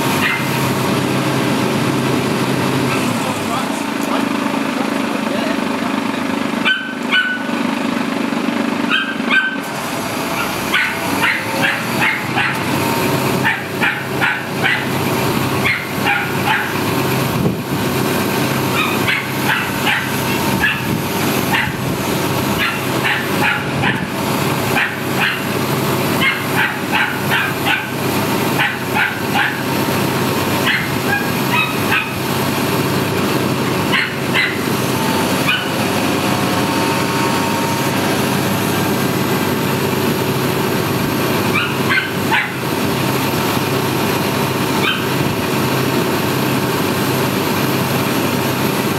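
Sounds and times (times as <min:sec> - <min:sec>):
lorry engine running: 0:00.0 - 0:48.9
dog barking: 0:00.2 - 0:00.5, 0:06.6 - 0:07.5, 0:08.9 - 0:09.7, 0:10.4 - 0:12.7, 0:13.4 - 0:15.0, 0:15.6 - 0:16.8, 0:18.8 - 0:20.9, 0:21.5 - 0:21.8, 0:22.6 - 0:24.1, 0:24.7 - 0:25.5, 0:26.2 - 0:28.0, 0:28.6 - 0:29.7, 0:30.6 - 0:32.2, 0:33.9 - 0:34.7, 0:35.4 - 0:35.8, 0:41.5 - 0:42.7, 0:44.8 - 0:45.2.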